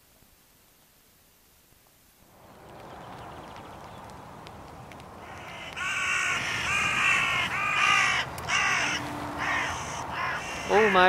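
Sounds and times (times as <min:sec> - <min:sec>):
crow cawing: 0:05.2 - 0:11.0.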